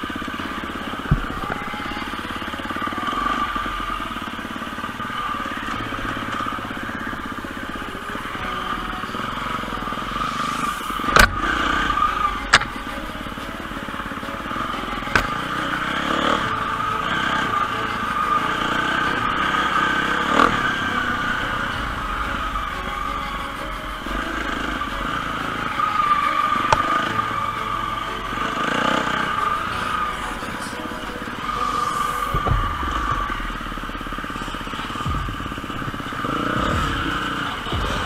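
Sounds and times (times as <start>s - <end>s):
motorcycle engine running: 0.0s - 38.0s
sharp knocks: 32.2s - 36.0s.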